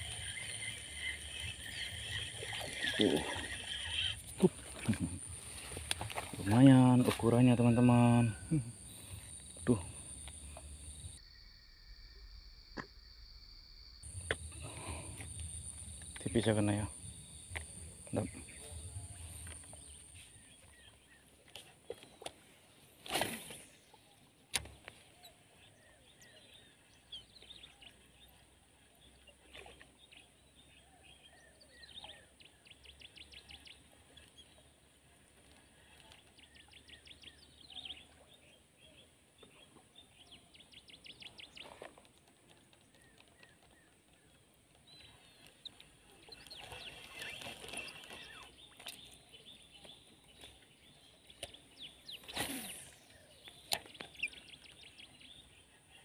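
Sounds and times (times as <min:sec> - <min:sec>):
small birds chirping: 0:00.0 - 0:11.4, 0:14.0 - 0:56.0.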